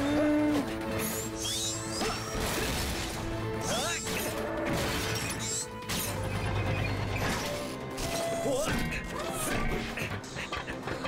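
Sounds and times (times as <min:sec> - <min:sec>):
background music: 0:00.0 - 0:11.0.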